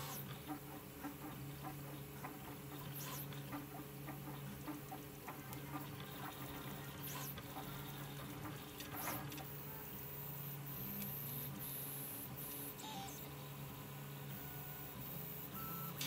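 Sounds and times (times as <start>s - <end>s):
printer fans humming: 0.0s - 16.0s
stepper motors chirping and clicking: 0.0s - 16.0s.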